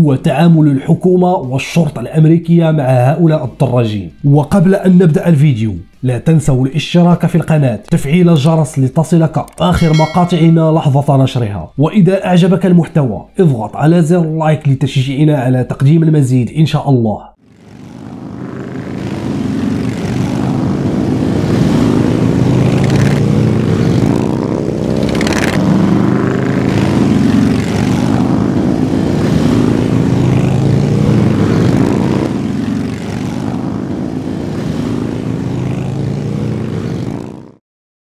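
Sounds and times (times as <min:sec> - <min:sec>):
motorcycle engines revving: 0:17.5 - 0:37.6.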